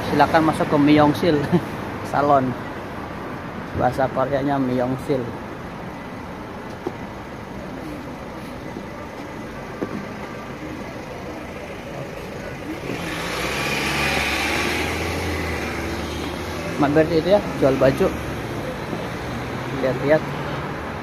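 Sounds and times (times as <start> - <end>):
street traffic: 0.0 - 21.0
vehicle passing close by: 12.6 - 21.0.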